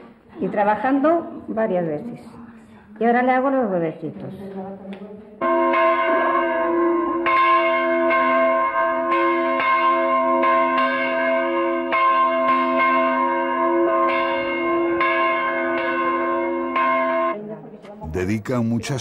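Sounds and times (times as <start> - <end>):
church bell ringing: 5.4 - 17.5.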